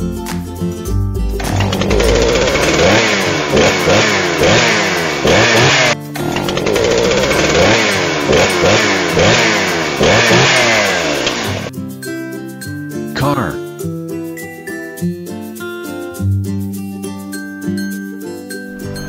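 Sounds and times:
dirt bike engine revving: 0:01.4 - 0:11.7.

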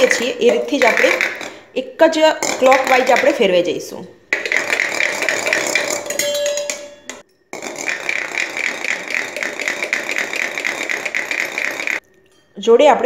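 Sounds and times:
metal rod scraping steel pot: 0:02.3 - 0:03.4, 0:04.3 - 0:12.6.

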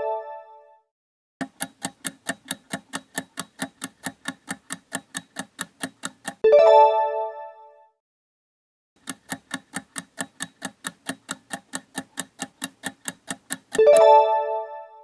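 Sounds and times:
clock-like timer ticks: 0:01.4 - 0:06.4, 0:09.0 - 0:14.2.

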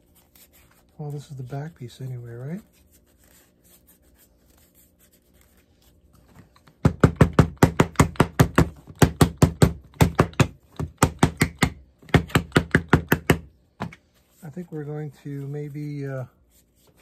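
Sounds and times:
hammer tapping leather: 0:06.8 - 0:14.0.

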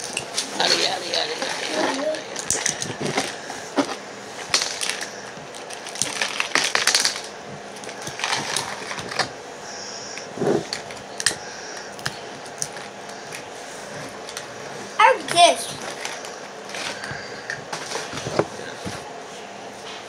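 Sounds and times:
crab shell cracking: 0:04.5 - 0:09.3.

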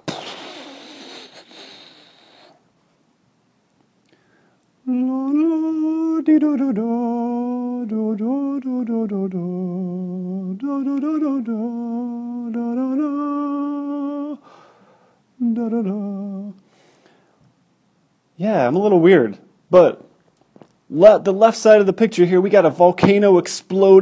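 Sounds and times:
person humming: 0:00.0 - 0:02.6, 0:04.8 - 0:14.5, 0:15.4 - 0:16.6.

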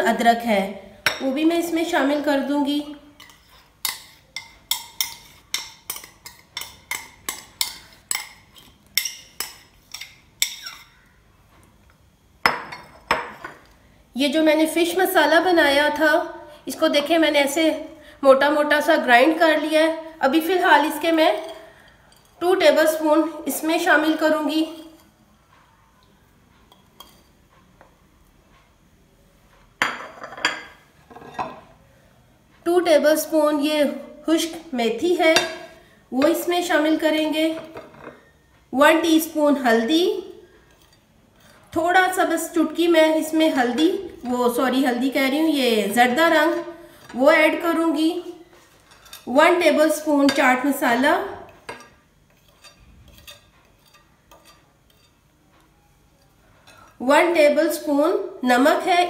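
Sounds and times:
glass dishes clinking and clattering: 0:29.8 - 0:31.6.

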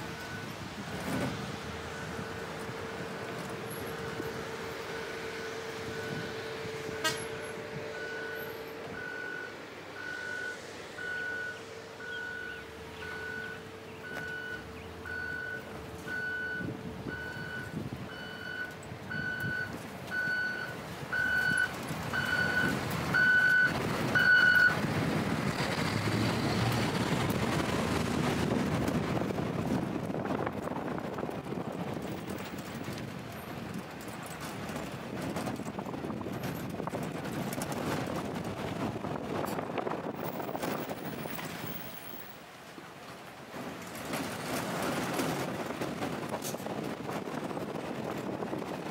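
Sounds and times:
vehicle reversing beeper: 0:00.0 - 0:06.5, 0:07.1 - 0:24.8
street and traffic noise: 0:00.0 - 0:48.9.

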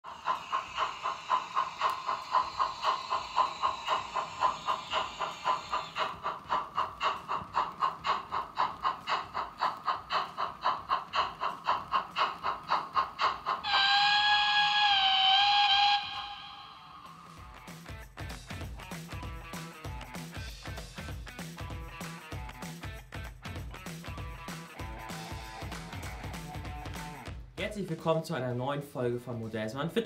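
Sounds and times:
steam hissing: 0:00.0 - 0:23.0, 0:23.9 - 0:27.3
steam locomotive chuffs: 0:00.0 - 0:30.0
steam whistle: 0:13.5 - 0:17.5.

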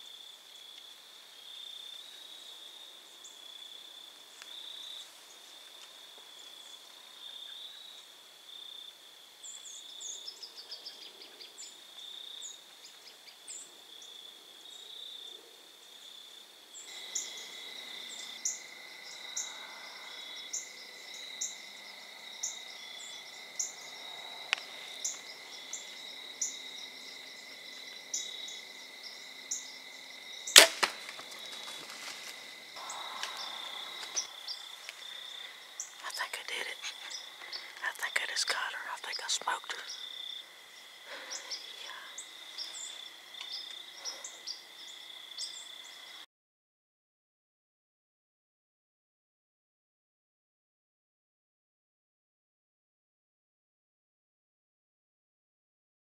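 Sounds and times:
insects trilling: 0:00.0 - 0:46.2
bow string crack: 0:30.5 - 0:32.4.

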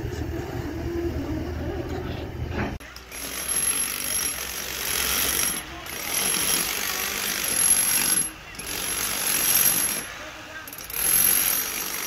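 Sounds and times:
power tool rattling and whining: 0:02.9 - 0:12.0.

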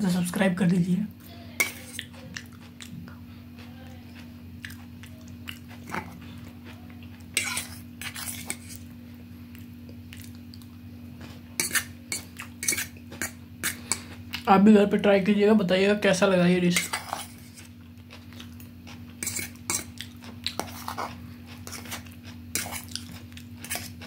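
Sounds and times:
steady low hum: 0:00.0 - 0:24.0
quiet chewing: 0:01.6 - 0:14.5, 0:16.8 - 0:24.0.

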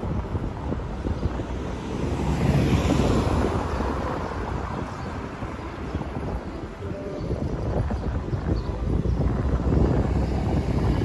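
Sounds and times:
car passing: 0:00.0 - 0:06.4
traffic rumble: 0:00.0 - 0:11.0
wind buffeting microphone: 0:00.0 - 0:11.0.

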